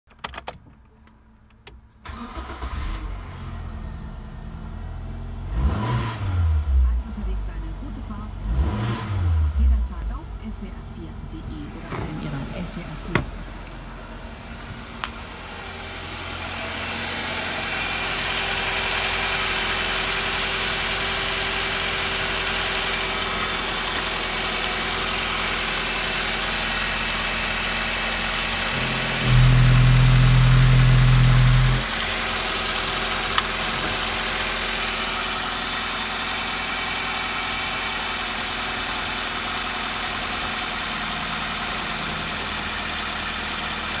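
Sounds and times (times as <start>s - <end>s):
car engine idling: 0.7s - 44.0s
loud low drone: 28.3s - 32.0s.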